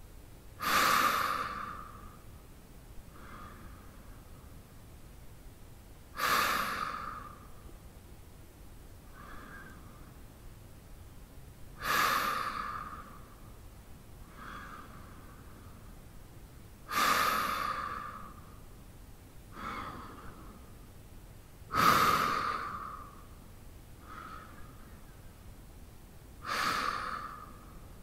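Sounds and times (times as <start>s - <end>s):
man breathing deeply in sleep: 0.6s - 2.4s, 3.1s - 4.6s, 6.1s - 7.7s, 9.0s - 10.2s, 11.8s - 13.6s, 14.2s - 16.0s, 16.8s - 18.7s, 19.5s - 20.8s, 21.7s - 23.4s, 24.0s - 25.0s, 26.4s - 28.0s.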